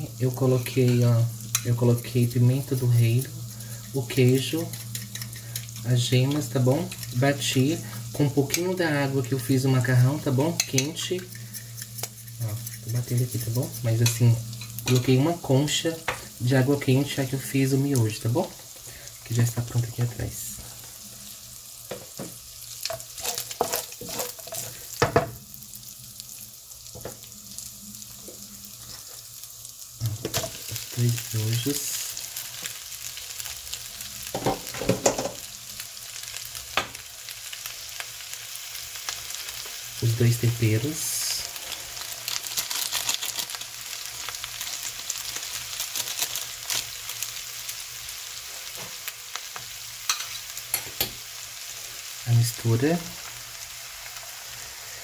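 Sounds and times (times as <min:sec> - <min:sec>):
bacon sizzling in a frying pan: 0:00.0 - 0:55.0
wooden spoon scraping and knocking: 0:22.9 - 0:24.8.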